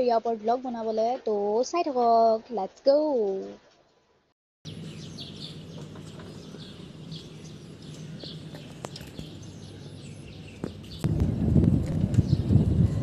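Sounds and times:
small birds chirping: 0:04.7 - 0:11.3, 0:11.9 - 0:13.0
low outdoor hum: 0:04.7 - 0:13.0
wind noise on microphone: 0:06.0 - 0:13.0.

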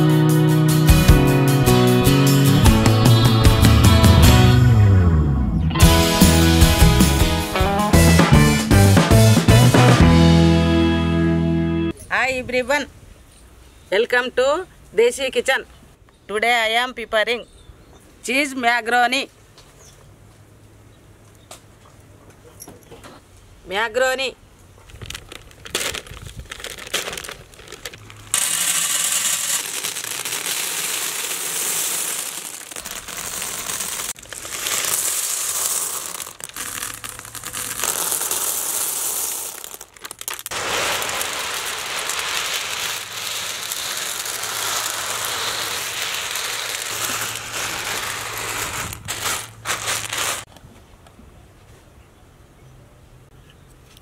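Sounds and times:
plastic packet crinkling: 0:24.9 - 0:50.5
dry pasta pouring onto a plate: 0:25.1 - 0:50.5.

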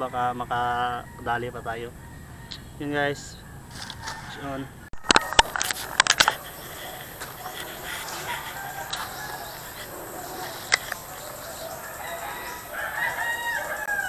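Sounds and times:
rooster crowing: 0:00.0 - 0:14.0
sharp clicks: 0:05.0 - 0:11.6.

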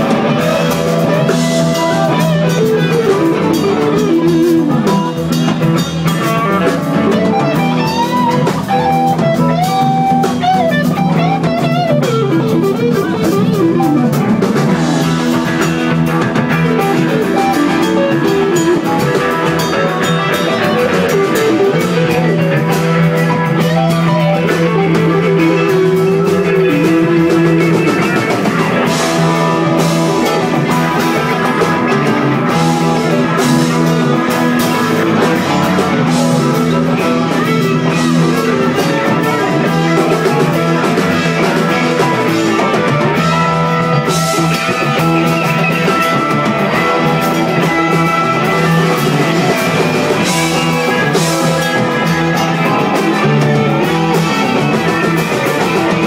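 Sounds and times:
bass guitar: 0:00.0 - 0:56.0
drum kit: 0:00.0 - 0:56.0
electric guitars: 0:00.0 - 0:56.0
keyboard: 0:00.0 - 0:56.0.

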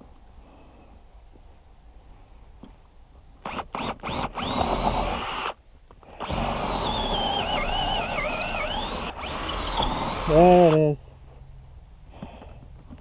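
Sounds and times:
cordless drill boring into wood: 0:03.4 - 0:10.8.

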